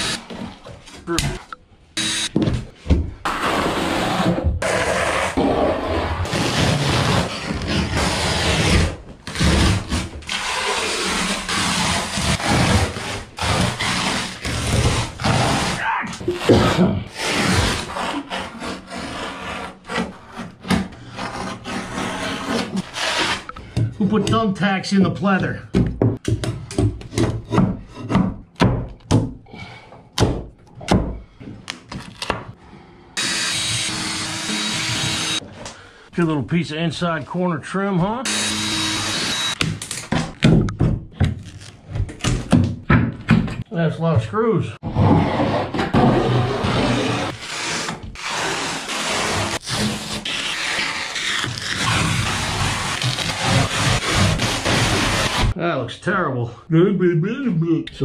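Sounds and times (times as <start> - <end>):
carpet scraping and tearing: 3.3 - 23.5, 44.9 - 55.6.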